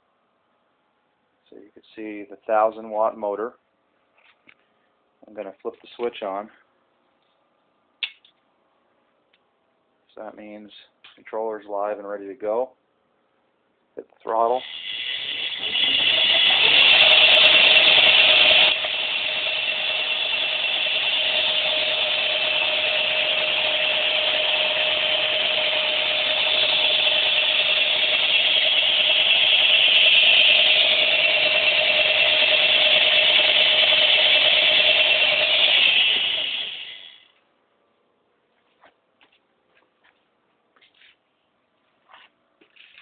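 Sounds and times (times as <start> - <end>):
electric motor whining: 14.6 - 37.2.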